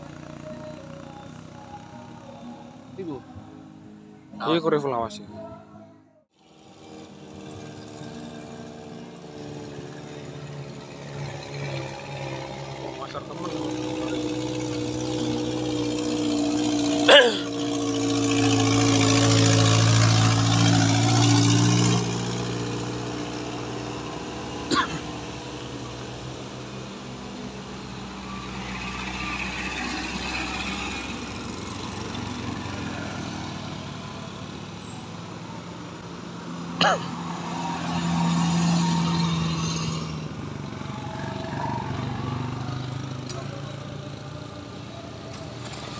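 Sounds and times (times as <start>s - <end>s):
small car engine labouring uphill: 0.0s - 4.6s, 6.3s - 45.9s
vehicle passing: 17.7s - 45.9s.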